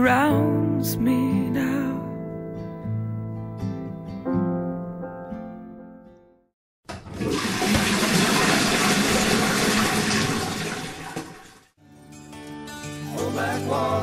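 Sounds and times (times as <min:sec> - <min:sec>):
acoustic guitar music: 0:00.0 - 0:06.4, 0:11.8 - 0:14.0
toilet flushing: 0:06.9 - 0:11.8.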